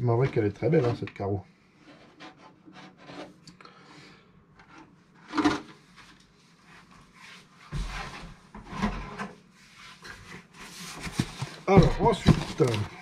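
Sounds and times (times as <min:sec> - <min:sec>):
packaging rubbing and scraping: 0:10.6 - 0:13.0
scrapes and bumps: 0:10.8 - 0:13.0.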